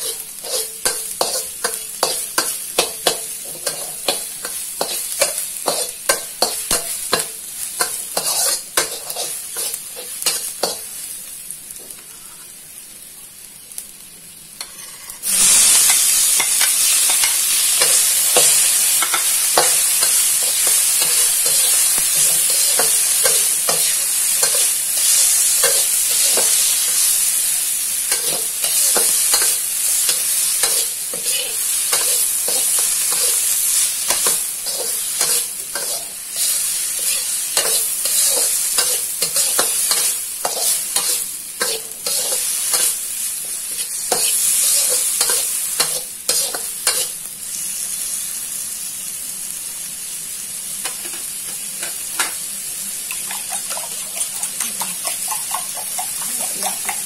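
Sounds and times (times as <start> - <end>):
metal spatula scraping wok: 0.0 - 7.2, 7.8 - 10.9, 14.6 - 27.2, 28.0 - 47.2
food sizzling in oil: 0.0 - 57.0.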